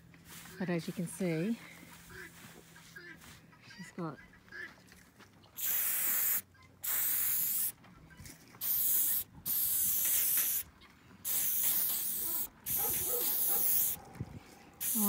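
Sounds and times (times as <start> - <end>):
spray can hissing: 5.6 - 7.8, 8.6 - 14.0, 14.8 - 15.0.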